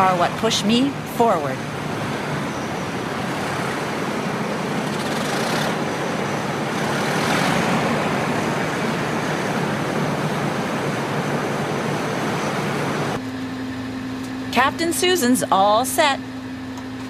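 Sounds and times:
rush of air from lift fans: 0.0 - 13.2
low engine hum: 0.0 - 17.0.

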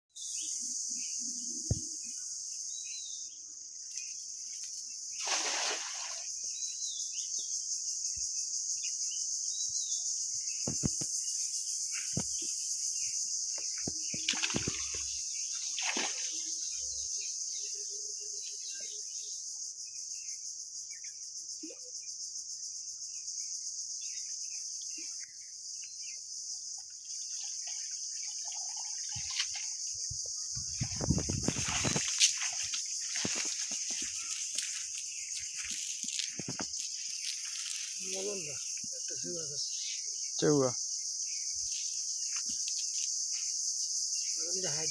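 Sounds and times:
insects droning: 0.1 - 44.9
splashes in shallow water: 5.2 - 6.3, 14.2 - 16.6, 31.0 - 36.9
bird chirps: 23.2 - 44.9.

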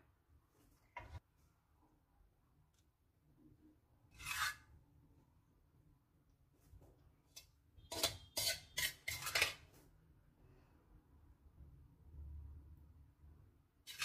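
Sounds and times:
spoon scraping dish: 4.1 - 4.8, 7.3 - 9.7.

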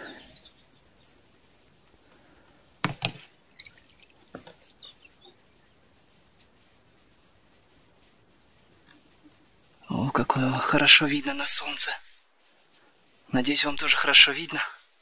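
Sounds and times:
water drips: 2.8 - 5.3.

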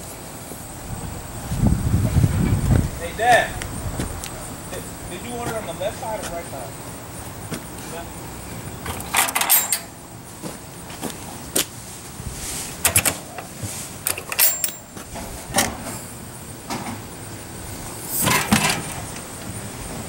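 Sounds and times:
outdoor background hiss: 0.0 - 20.0
metallic clicks and knocks: 8.8 - 9.9, 12.8 - 13.5, 14.1 - 15.8
heavy grill lid clattering open: 18.1 - 19.2.

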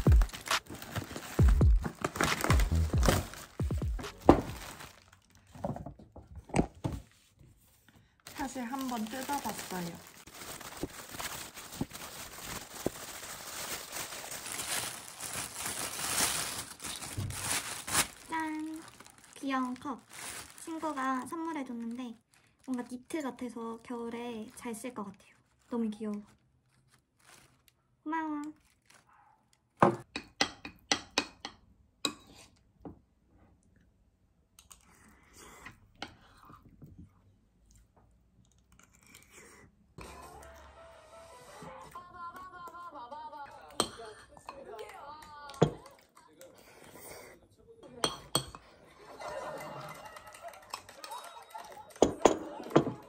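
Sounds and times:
paper rustling and crinkling: 0.0 - 5.9, 8.2 - 23.2, 23.8 - 27.8, 28.5 - 29.1
cutlery scraping a plate: 32.1 - 32.6
mug and packaging clicks: 51.9 - 53.0.

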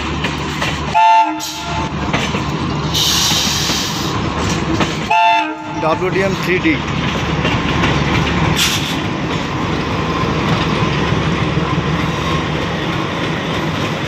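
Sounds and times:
wheels rumbling over rail joints: 0.0 - 14.0
sharp high hiss: 2.9 - 4.2.

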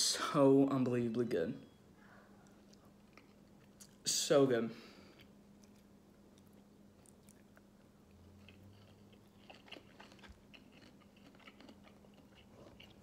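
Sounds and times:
low steady hum: 0.0 - 13.0
chewing mouth clicks: 5.2 - 7.7, 8.4 - 13.0.

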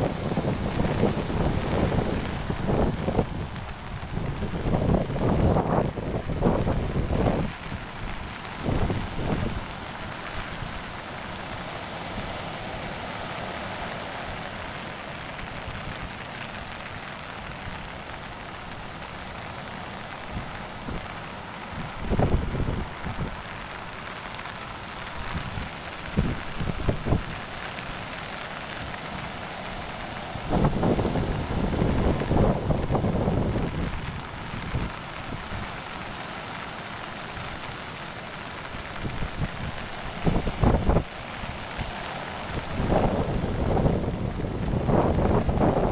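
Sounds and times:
wind buffeting microphone: 0.0 - 9.7, 30.4 - 35.7, 39.0 - 41.1, 42.6 - 45.9
ocean surf breaking: 0.0 - 45.9.

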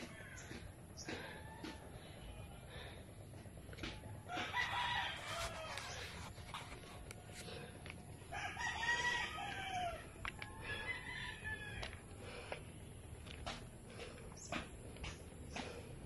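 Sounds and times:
rooster crowing: 4.2 - 6.3, 8.3 - 12.2.

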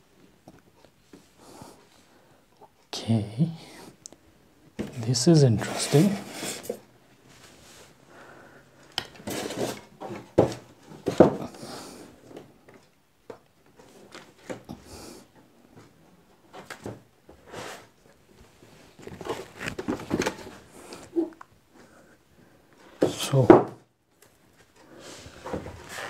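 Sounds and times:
knocks and bumps of handling: 9.0 - 11.5, 19.0 - 20.6.

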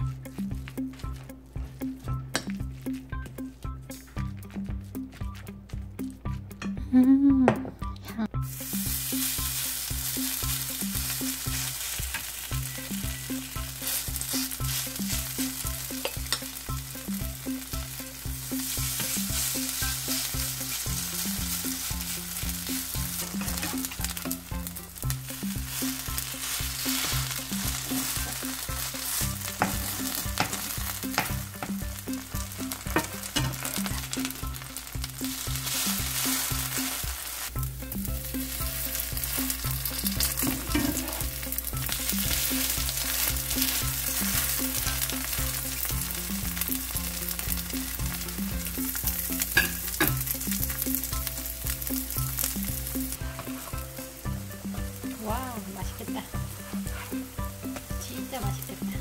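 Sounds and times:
metal spatula scraping and tapping: 2.2 - 2.7, 16.0 - 16.6, 23.0 - 24.3, 26.1 - 31.8, 32.7 - 34.2, 40.0 - 41.4, 49.5 - 50.3, 53.3 - 53.9
batter sizzling in hot oil: 8.4 - 59.0.

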